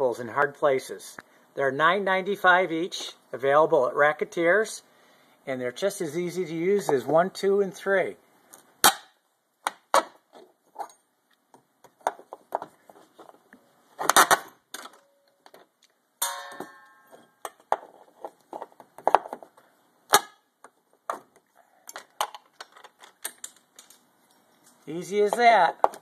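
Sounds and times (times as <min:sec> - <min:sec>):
short metallic ring: 0:16.2 - 0:17.4.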